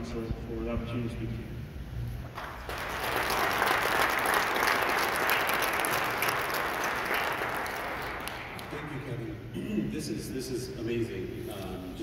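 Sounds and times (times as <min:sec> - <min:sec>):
audience applauding: 0:02.4 - 0:09.1.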